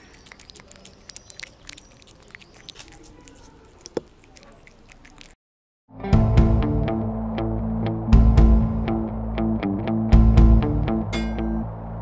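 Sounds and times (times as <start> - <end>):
cat chewing wet food: 0.0 - 5.4.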